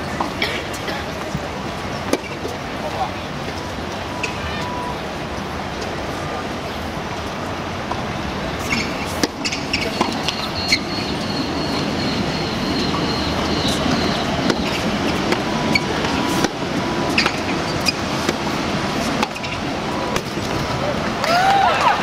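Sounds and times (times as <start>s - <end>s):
crowd murmur: 0.0s - 22.0s
tennis ball bounces: 14.4s - 20.6s.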